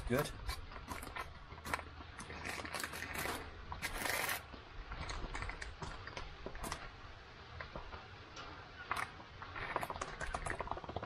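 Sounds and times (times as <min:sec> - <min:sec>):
foil packet crinkling: 0:00.4 - 0:04.4
spoon scraping in foil pouch: 0:00.4 - 0:04.5.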